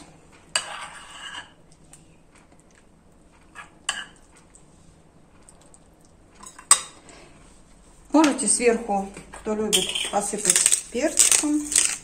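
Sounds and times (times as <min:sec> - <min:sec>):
metal spoon clinking on dishes: 0:09.7 - 0:10.7.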